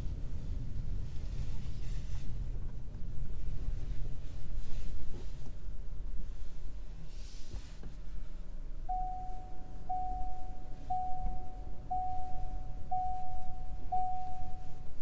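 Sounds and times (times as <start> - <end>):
low rumble of car rolling: 0.0 - 15.0
car warning chime: 8.9 - 15.0.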